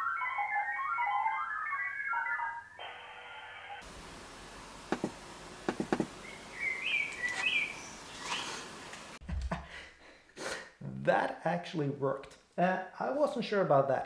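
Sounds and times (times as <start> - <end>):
steady background hiss: 3.8 - 9.2.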